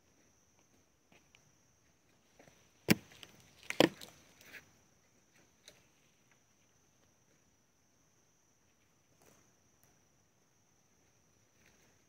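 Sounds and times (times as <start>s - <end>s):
dry branches snapping: 2.9s - 4.1s.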